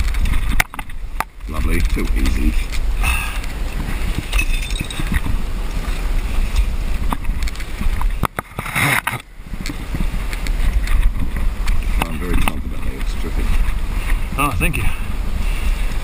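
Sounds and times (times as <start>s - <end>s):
wind buffeting microphone: 0.0s - 16.0s
small clicks and scrapes: 6.5s - 14.2s.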